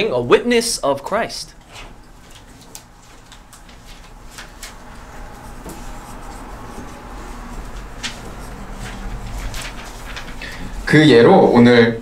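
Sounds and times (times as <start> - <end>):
marker writing on whiteboard: 4.9 - 10.4.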